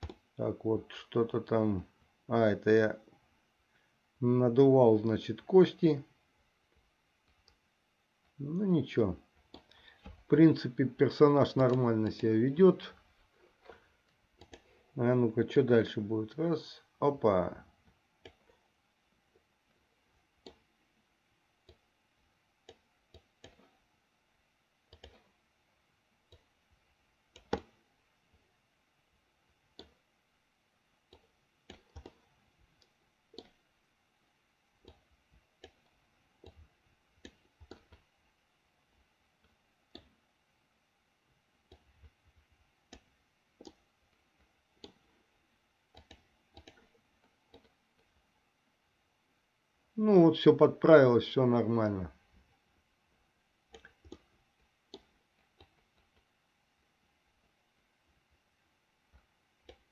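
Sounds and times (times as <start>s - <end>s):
computer mouse clicks: 9.4s - 10.3s, 11.5s - 12.2s, 13.7s - 14.7s, 18.2s - 18.6s, 20.4s - 20.7s, 22.6s - 23.8s, 24.9s - 25.4s, 26.3s - 26.6s, 27.3s - 28.4s, 29.7s - 30.0s, 31.1s - 33.6s, 34.8s - 38.2s, 39.4s - 40.2s, 41.6s - 42.2s, 42.8s - 45.2s, 45.9s - 48.1s, 53.7s - 56.3s, 59.1s - 59.9s.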